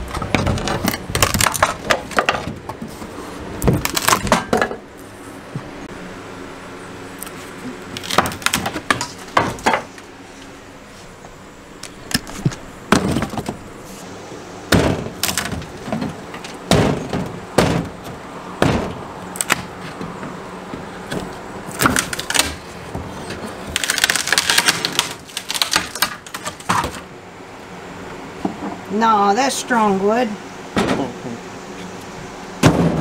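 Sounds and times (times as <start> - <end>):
wood splintering: 0.0 - 2.9, 3.6 - 4.8, 7.2 - 10.0, 11.8 - 13.7, 14.7 - 27.1
wood knocking and cracking: 0.1 - 2.9, 3.6 - 4.8, 7.9 - 10.0, 11.8 - 13.6, 14.7 - 27.0.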